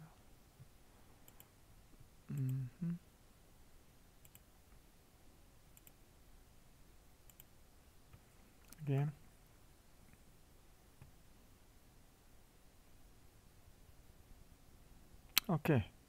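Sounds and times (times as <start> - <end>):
computer mouse clicks: 1.2 - 1.5, 4.2 - 4.5, 5.7 - 6.0, 7.2 - 7.5, 8.1 - 8.9.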